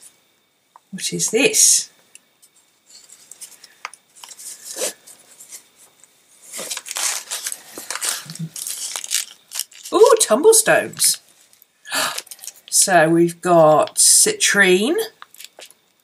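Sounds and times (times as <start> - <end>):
pouch rustling and handling: 6.5 - 10.2.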